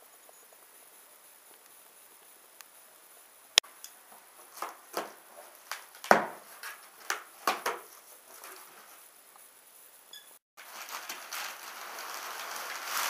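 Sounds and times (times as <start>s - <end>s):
cardboard flaps scraping and rustling: 4.4s - 9.1s, 10.6s - 13.0s.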